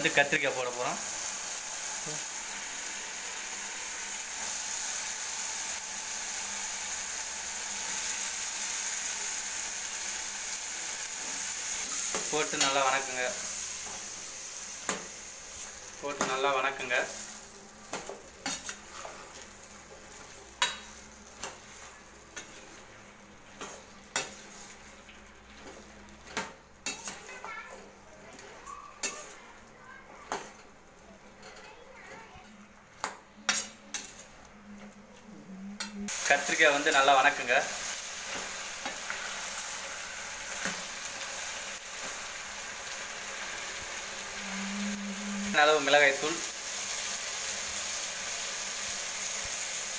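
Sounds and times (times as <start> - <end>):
frying sizzle in oil: 0.0 - 34.6, 35.8 - 49.9
metal spatula scraping a pan: 23.5 - 29.4.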